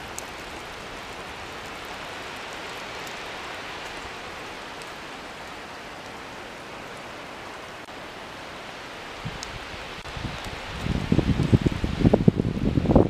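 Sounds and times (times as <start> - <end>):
faint rain drop ticks: 0.0 - 6.3, 9.3 - 11.7
rain hissing: 0.0 - 13.0.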